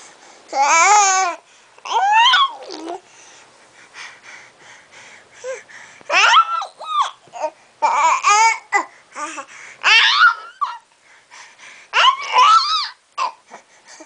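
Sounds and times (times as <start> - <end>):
infant babbling: 0.5 - 3.0, 6.1 - 10.8.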